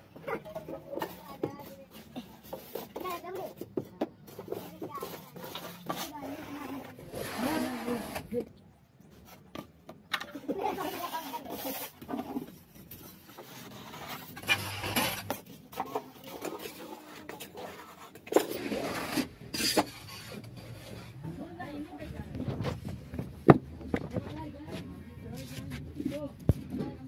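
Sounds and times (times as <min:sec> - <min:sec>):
sharp scrapes and taps: 0:00.2 - 0:07.6, 0:11.3 - 0:21.2
wet cement scraping: 0:00.2 - 0:22.9.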